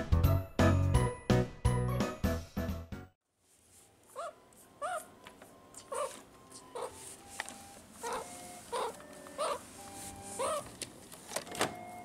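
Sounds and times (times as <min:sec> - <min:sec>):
faint background music: 0:03.7 - 0:12.0
meerkat chirping calls: 0:04.1 - 0:07.2, 0:08.0 - 0:10.7.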